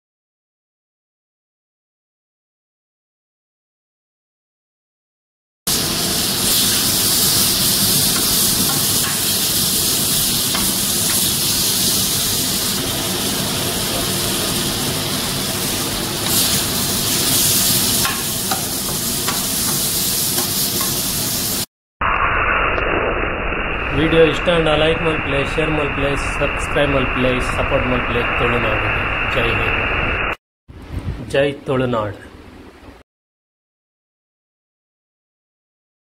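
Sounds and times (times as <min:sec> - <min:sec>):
noodles sizzling on a griddle: 0:05.7 - 0:21.7.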